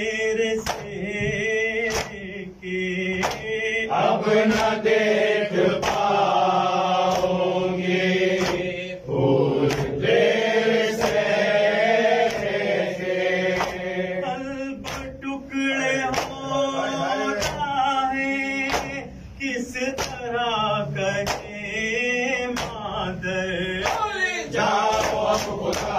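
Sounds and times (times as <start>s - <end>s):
men chanting a lament: 0.0s - 25.9s
hands slapping chests: 0.6s - 1.0s, 1.8s - 2.2s, 3.2s - 3.5s, 4.5s - 4.9s, 5.6s - 6.3s, 6.9s - 7.4s, 8.3s - 8.8s, 9.6s - 11.4s, 12.1s - 13.9s, 14.8s - 15.2s, 16.0s - 16.4s, 17.3s - 17.7s, 18.6s - 19.0s, 20.0s - 20.2s, 21.2s - 21.5s, 23.8s - 24.1s, 24.7s - 25.9s.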